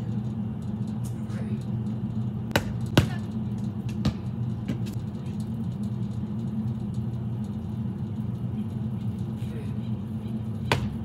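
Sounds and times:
steady low hum: 0:00.0 - 0:11.0
basketball knocking on backboard and rim: 0:02.5 - 0:03.2, 0:03.8 - 0:05.0, 0:10.7 - 0:11.0
basketball bouncing on concrete: 0:02.5 - 0:05.0, 0:10.6 - 0:11.0.

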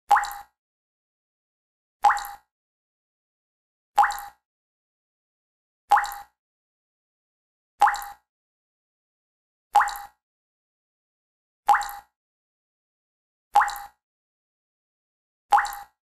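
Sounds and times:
water drops plopping: 0:00.1 - 0:00.5, 0:02.0 - 0:02.4, 0:04.0 - 0:04.4, 0:05.9 - 0:06.4, 0:07.8 - 0:08.2, 0:09.8 - 0:10.2, 0:11.7 - 0:12.1, 0:13.6 - 0:14.0, 0:15.5 - 0:16.0.

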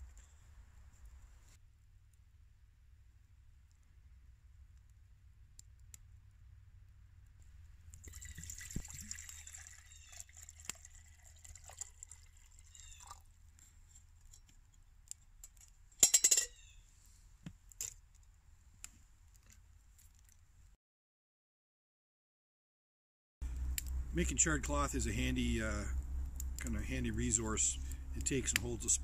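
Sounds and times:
campfire crackling: 0:03.3 - 0:16.1, 0:16.7 - 0:20.7, 0:23.4 - 0:29.0
water pouring into a metal mug: 0:07.9 - 0:13.2.

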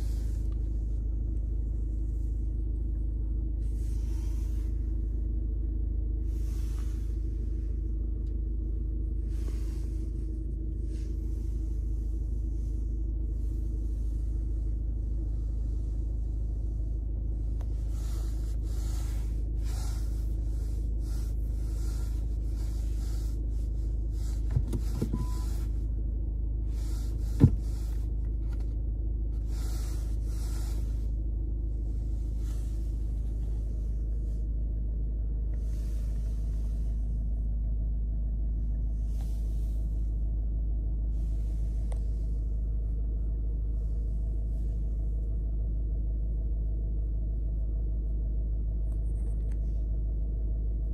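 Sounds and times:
diesel engine idling: 0:00.0 - 0:50.9
short beep: 0:25.2 - 0:25.5
hiss: 0:29.4 - 0:31.1.

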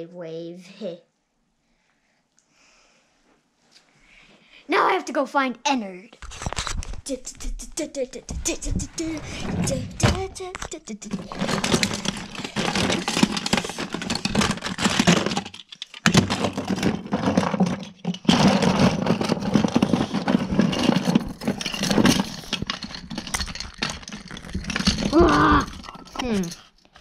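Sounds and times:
plastic toys clattering: 0:06.2 - 0:27.0.

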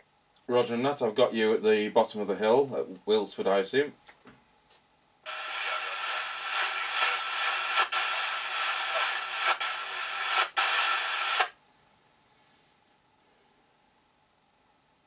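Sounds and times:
radio static hiss: 0:05.3 - 0:11.6.

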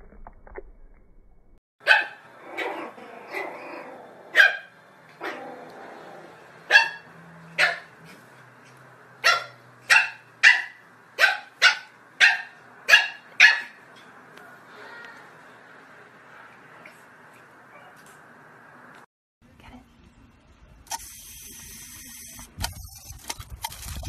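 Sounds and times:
small dog yapping: 0:01.8 - 0:03.6.

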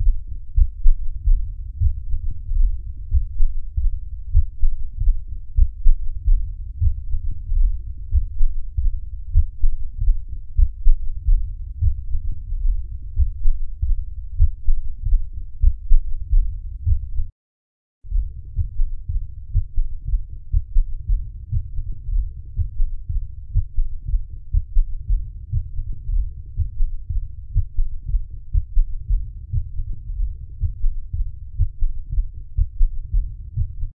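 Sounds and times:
heartbeat through stethoscope: 0:00.0 - 0:17.3, 0:18.1 - 0:34.0.

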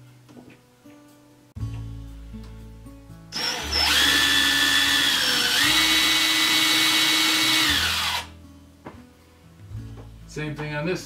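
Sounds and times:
quiet background music: 0:00.0 - 0:11.0
impact driver motor whine: 0:03.4 - 0:08.3.

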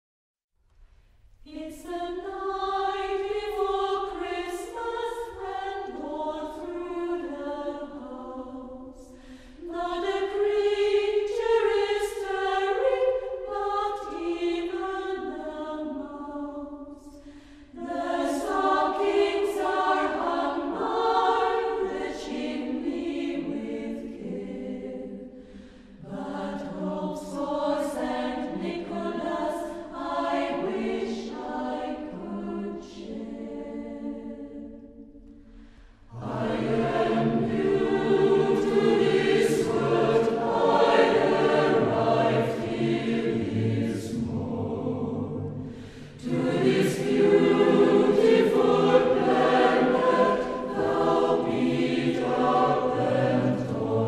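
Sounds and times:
mixed choir singing: 0:01.5 - 0:35.0, 0:36.0 - 0:54.0.

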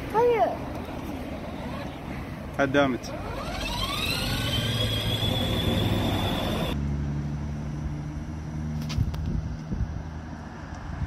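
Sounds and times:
toy car electric motor whining: 0:03.0 - 0:06.8.

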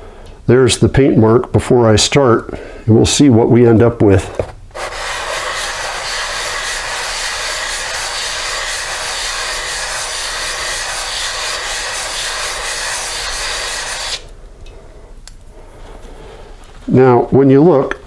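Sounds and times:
wet-sanding metal by hand: 0:04.8 - 0:14.2.

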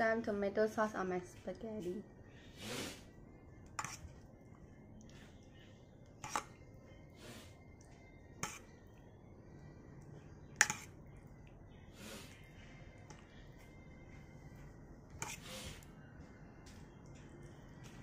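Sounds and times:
spoon clinking against bowls: 0:03.7 - 0:04.2, 0:08.3 - 0:08.9, 0:10.5 - 0:11.0.

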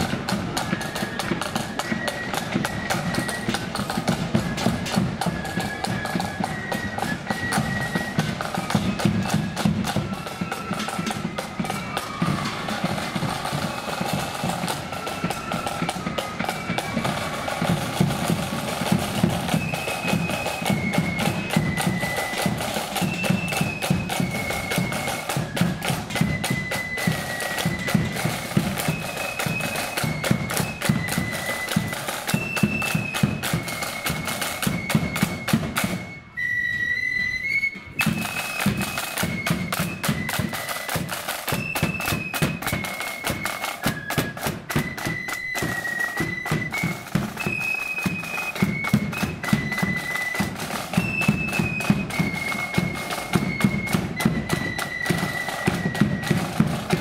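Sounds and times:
flutes playing melody: 0:00.0 - 0:57.0
rapid side-drum strokes: 0:08.3 - 0:35.8.

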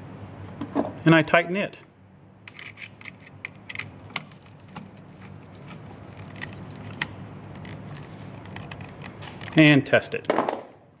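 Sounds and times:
small metallic clicks and scrapes: 0:02.5 - 0:09.7.

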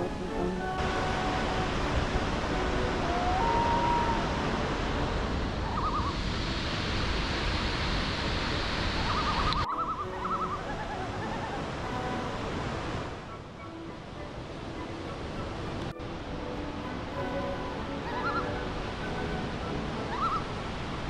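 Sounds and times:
rushing creek noise: 0:00.0 - 0:21.0
bird trills: 0:05.6 - 0:06.2, 0:09.1 - 0:11.6, 0:18.0 - 0:18.7, 0:20.1 - 0:20.5
rising bird whistle: 0:05.6 - 0:06.2, 0:09.1 - 0:12.4, 0:17.1 - 0:20.5.

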